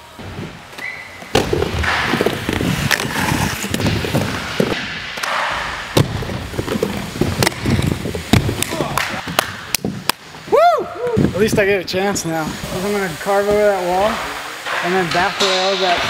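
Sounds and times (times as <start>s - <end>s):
skate wheels rolling on wood: 0.0s - 16.0s
sharp knocks of skates: 0.2s - 10.2s, 14.0s - 16.0s.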